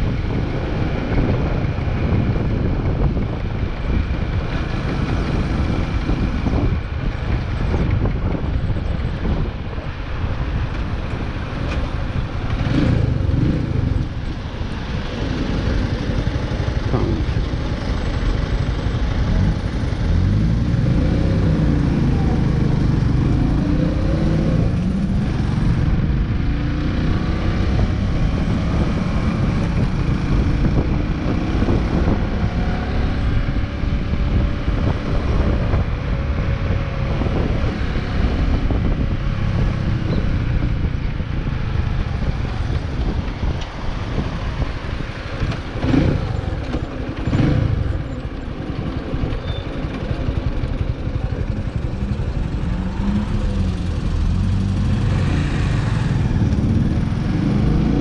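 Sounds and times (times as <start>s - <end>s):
wind rumble on microphone: 0.0s - 58.0s
motorcycle engine running: 12.3s - 58.0s.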